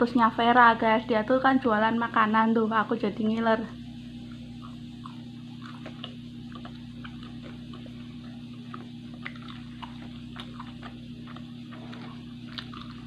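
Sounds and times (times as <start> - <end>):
steady low hum: 0.0 - 13.0
person chewing food: 4.2 - 13.0.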